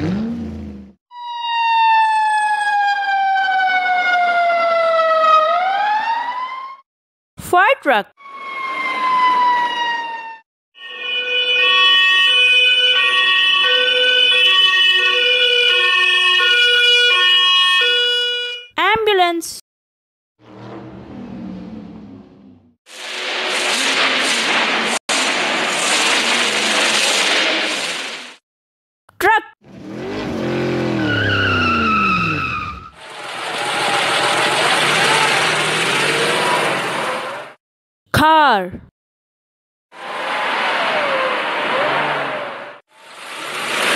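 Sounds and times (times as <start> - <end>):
truck engine winding down: 0.0 - 1.0, 20.4 - 22.8, 29.6 - 37.5
ambulance two-tone siren: 1.1 - 6.9, 8.2 - 18.8, 30.9 - 33.2, 39.9 - 42.8
car engine and tyre rush: 20.4 - 28.0, 29.6 - 37.6, 40.0 - 43.9
whining tone: 30.1 - 36.9.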